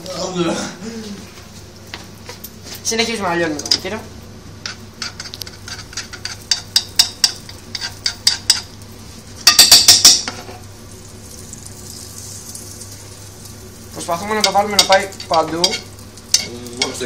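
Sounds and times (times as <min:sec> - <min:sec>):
butter sizzling: 0:03.1 - 0:17.0
utensil scraping frying pan: 0:04.6 - 0:10.7, 0:13.9 - 0:17.0.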